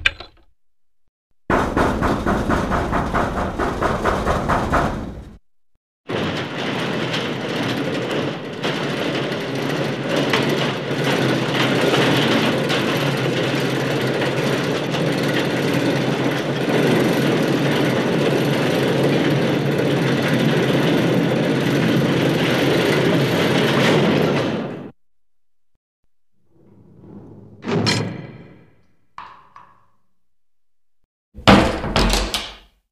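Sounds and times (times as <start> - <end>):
door banging and rattling: 0.0 - 0.5, 1.5 - 5.4, 6.1 - 18.5, 26.4 - 30.0, 31.4 - 32.8.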